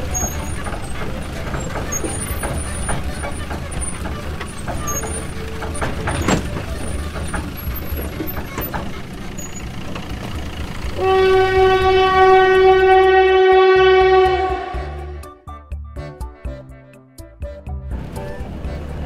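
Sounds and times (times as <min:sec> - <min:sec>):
sharp knocks: 0:00.0 - 0:10.8
vehicle rumble: 0:00.0 - 0:19.0
loud horn blast: 0:10.9 - 0:15.4.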